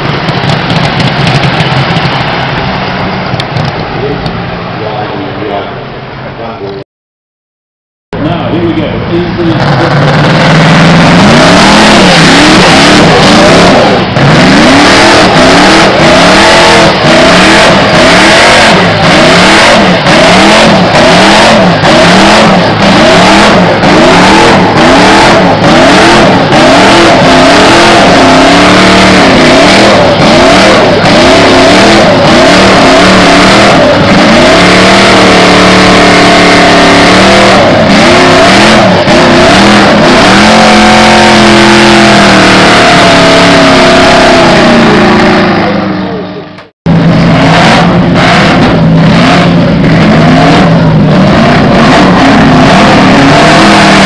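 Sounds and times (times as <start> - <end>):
racing car engine revving: 0.0 - 6.8, 8.2 - 54.0.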